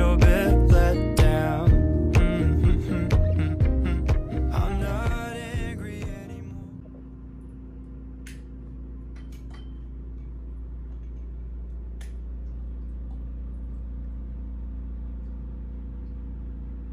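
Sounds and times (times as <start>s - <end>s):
low rumble: 0.0s - 9.0s
faint hum: 0.0s - 16.9s.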